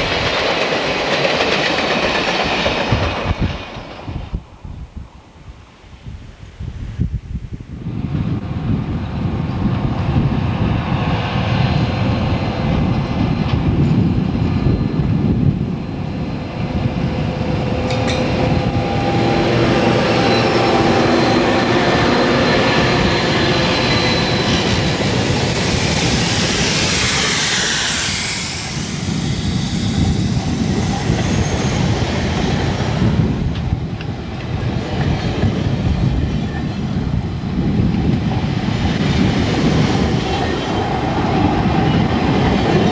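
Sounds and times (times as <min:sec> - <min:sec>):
train wheels on rails: 0:00.0 - 0:04.6, 0:08.4 - 0:42.9
diesel locomotive engines passing: 0:00.0 - 0:05.7, 0:07.8 - 0:42.9.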